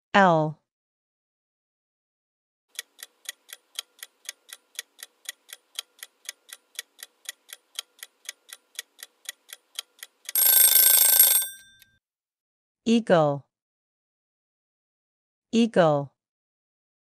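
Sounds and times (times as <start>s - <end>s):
clock ticking: 2.7s - 11.6s.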